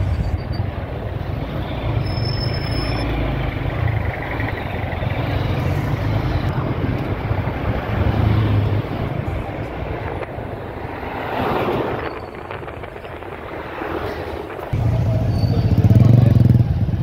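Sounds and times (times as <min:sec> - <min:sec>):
traffic rumble: 0:00.0 - 0:17.0
motorcycle engine running: 0:14.8 - 0:17.0.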